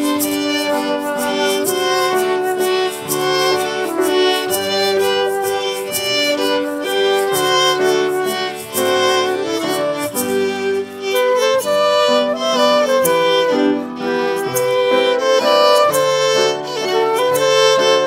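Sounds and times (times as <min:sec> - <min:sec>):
fiddle playing a waltz: 0:00.0 - 0:18.0
flute: 0:00.0 - 0:18.0
piano: 0:00.0 - 0:18.0.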